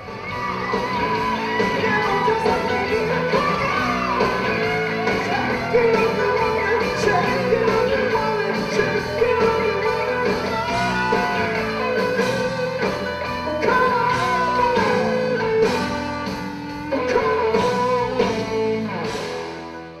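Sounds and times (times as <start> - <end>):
live hard rock band: 0.0 - 20.0
man singing into a microphone: 1.5 - 12.4, 13.5 - 15.9, 16.9 - 19.1.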